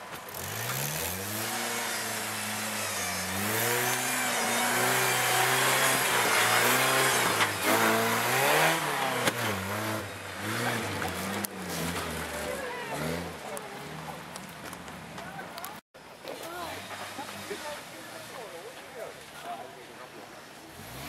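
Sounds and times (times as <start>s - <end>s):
tyres spinning in loose dirt: 0.0s - 18.9s
engine revving hard: 0.3s - 13.5s, 20.7s - 21.0s.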